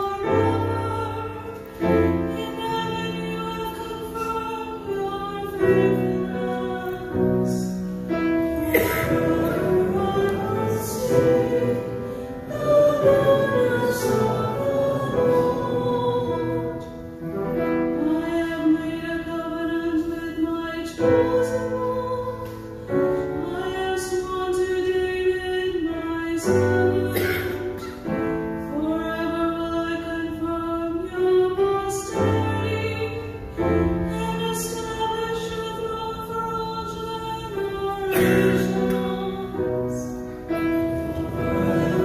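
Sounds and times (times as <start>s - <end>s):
woman singing: 0.0s - 42.0s
instrumental accompaniment: 37.2s - 42.0s.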